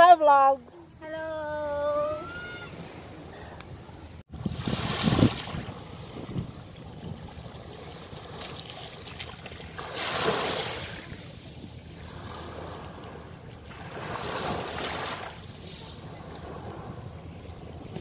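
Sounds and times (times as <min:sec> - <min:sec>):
waves washing onto beach: 0:04.2 - 0:18.0
wind rumble on microphone: 0:04.2 - 0:18.0.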